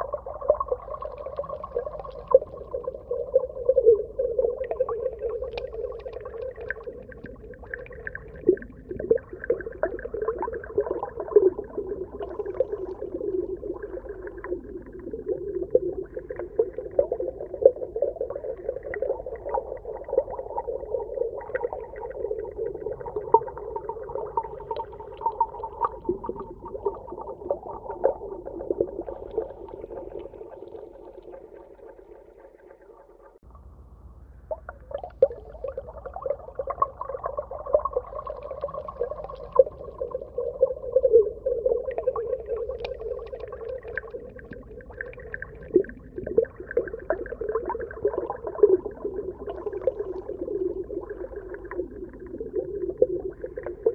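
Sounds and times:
muffled underwater water movement: 0.0 - 53.9
small crackles and clicks: 4.7 - 9.2, 42.4 - 46.5.

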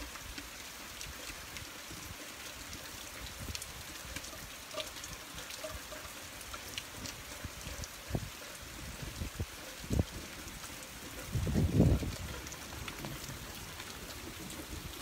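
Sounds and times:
rain on wet road: 0.0 - 15.0.

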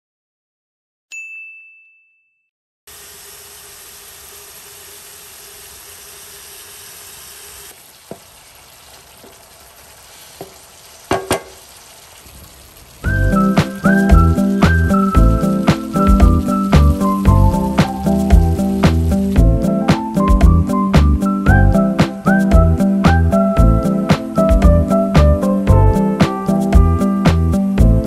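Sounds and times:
chicken sizzling in hot oil: 2.9 - 22.2
music: 13.0 - 28.0.

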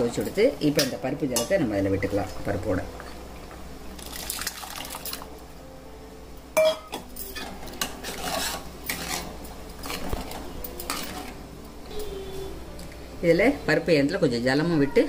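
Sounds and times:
liquid pouring into pot: 4.0 - 5.2
metal ladle stirring and scraping: 7.2 - 11.4.

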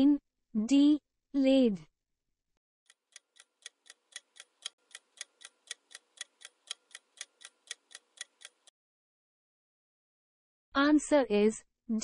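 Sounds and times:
ticking clock: 2.9 - 8.7.

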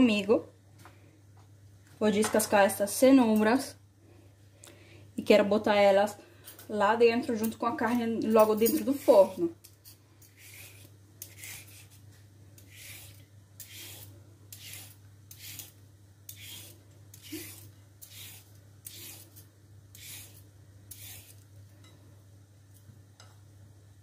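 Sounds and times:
peeler scraping a carrot: 8.7 - 12.0, 12.6 - 21.5.

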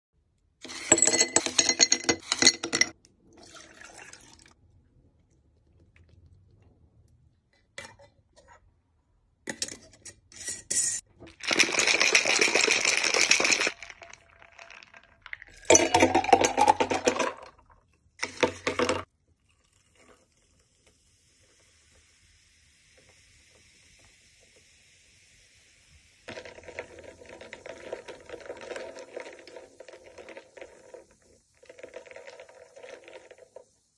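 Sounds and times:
ice rattling in glass jar: 11.3 - 17.6, 26.3 - 31.0
sparkling water fizzing: 19.9 - 33.8.

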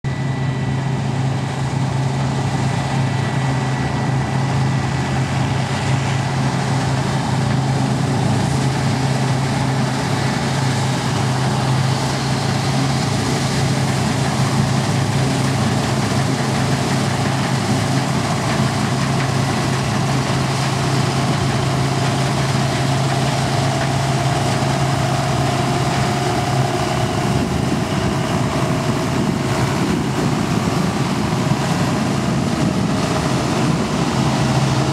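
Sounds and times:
diesel engines running under load: 0.1 - 34.9.

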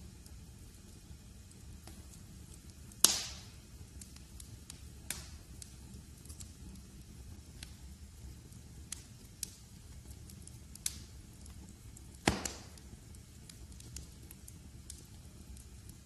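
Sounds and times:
low fire rumble: 0.0 - 16.0
wood fire crackling: 0.0 - 16.0
loud pop of fire: 2.9 - 6.4, 12.1 - 13.0.

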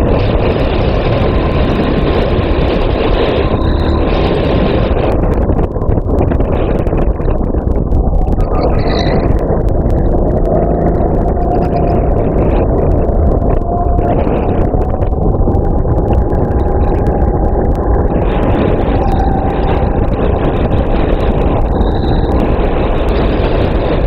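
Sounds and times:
kart engine running: 0.0 - 5.3, 7.9 - 13.3.

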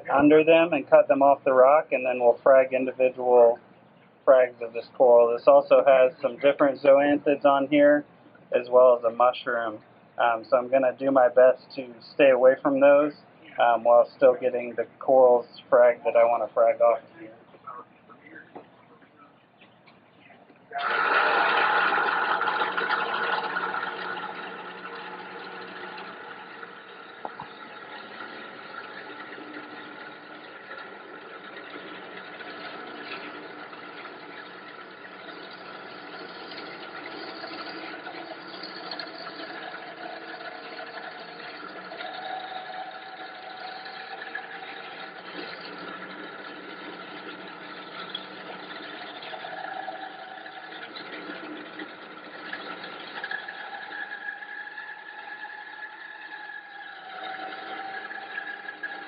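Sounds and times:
band saw cutting rock: 0.0 - 3.6, 20.8 - 59.0.

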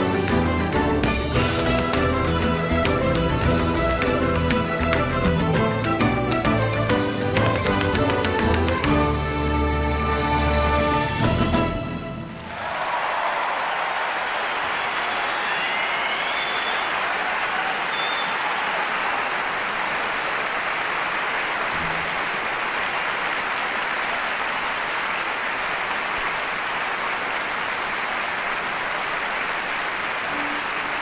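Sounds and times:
large audience applauding: 0.0 - 10.6, 12.2 - 31.0
short whistles: 15.0 - 17.0, 17.9 - 18.5.

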